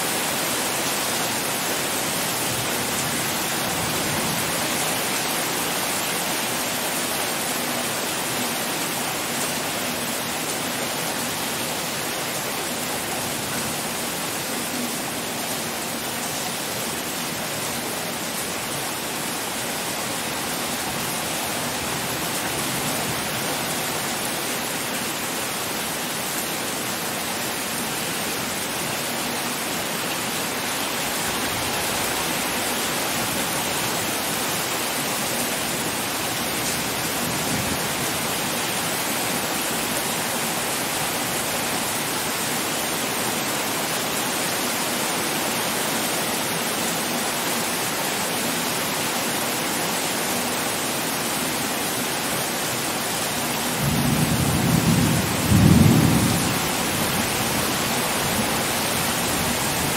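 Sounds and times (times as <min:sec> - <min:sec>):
heavy rain: 0:00.0 - 0:59.9
thunder rumbling: 0:53.8 - 0:57.4.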